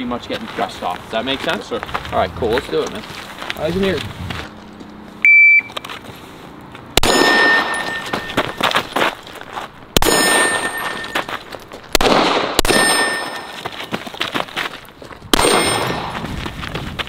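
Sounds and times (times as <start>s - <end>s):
shot timer beep: 5.2s - 5.7s
handgun firing: 7.0s - 8.0s, 11.9s - 13.4s, 15.4s - 16.2s
steel targets ringing: 7.0s - 8.7s, 10.0s - 11.4s, 12.6s - 13.8s, 15.4s - 16.2s.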